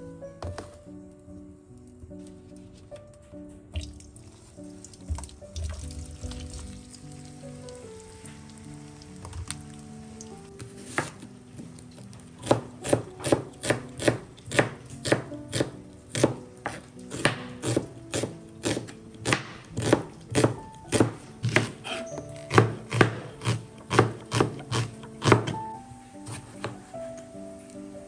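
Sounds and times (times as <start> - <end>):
knife chopping on cutting board: 10.6 - 11.3, 12.4 - 25.7, 26.3 - 26.8.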